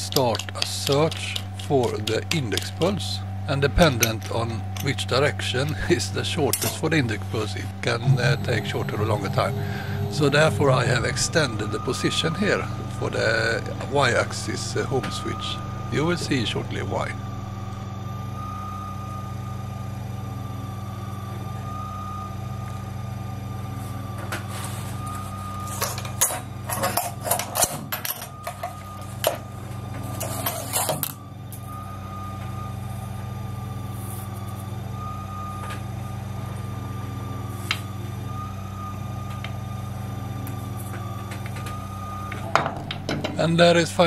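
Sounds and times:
sharp clicks and rattles: 0.0 - 2.9
stepper motor hum and whine: 0.0 - 44.0.

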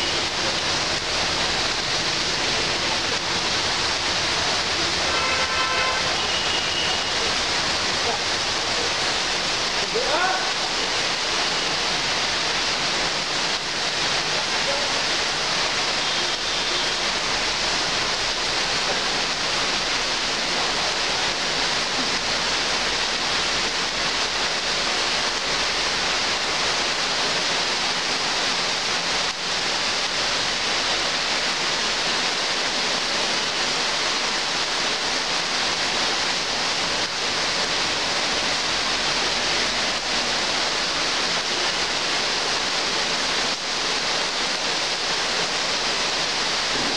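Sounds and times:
heavy rain on foliage: 0.0 - 46.9.

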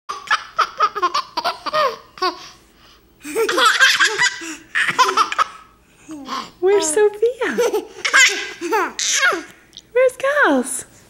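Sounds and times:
baby laughing: 0.1 - 2.6, 3.2 - 6.5, 7.4 - 9.5
young children laughing: 0.2 - 2.6, 3.2 - 6.5, 7.4 - 9.5.

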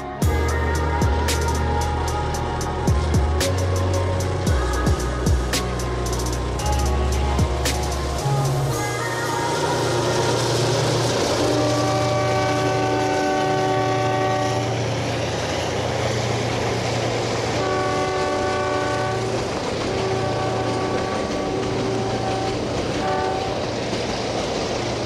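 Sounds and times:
train rumbling on tracks: 0.0 - 25.0
train horn blasts: 9.5 - 14.9, 17.5 - 23.8.

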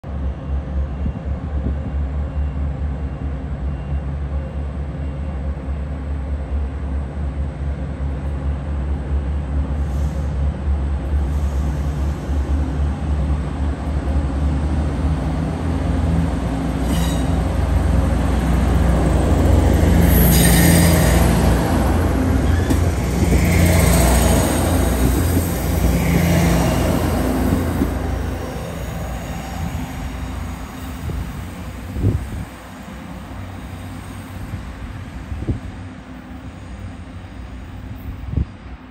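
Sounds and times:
railcar diesel engine rumbling: 0.0 - 38.9.

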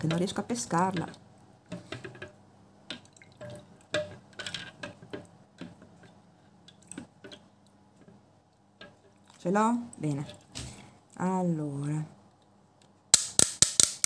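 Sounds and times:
water dripping and splashing: 0.0 - 11.0.

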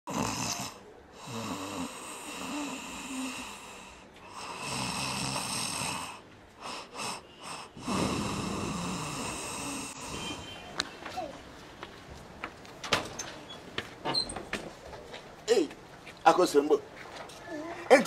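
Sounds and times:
man snoring: 0.1 - 10.2.

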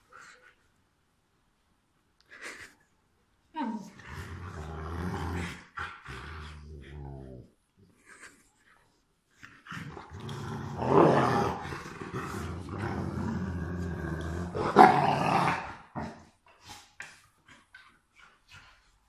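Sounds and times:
dogs growling in play: 3.8 - 8.0, 9.4 - 18.0.

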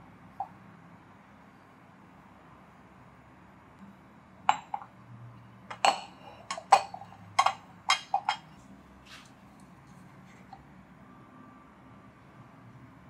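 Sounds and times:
glass jugs clinking on countertop: 4.5 - 4.9, 5.7 - 8.5.

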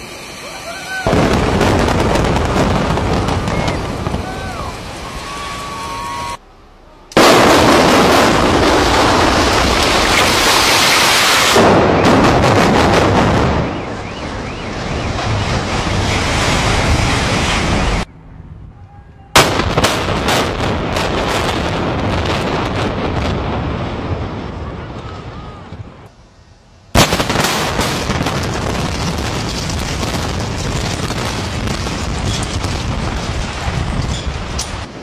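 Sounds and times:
building collapse rumble: 0.0 - 18.1, 19.4 - 26.1, 27.0 - 35.0
demolition charges blasting: 0.0 - 18.1, 27.0 - 35.0.

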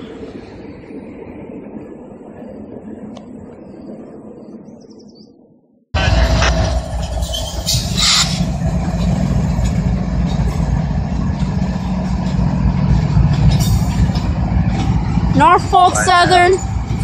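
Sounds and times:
high-pitched squeals: 6.0 - 14.9
locomotive engine rumble: 6.0 - 17.0
train wheels on rail: 6.0 - 17.0.

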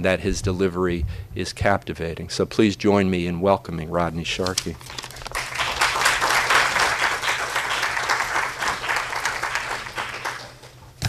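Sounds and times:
audience applauding: 5.0 - 10.8.

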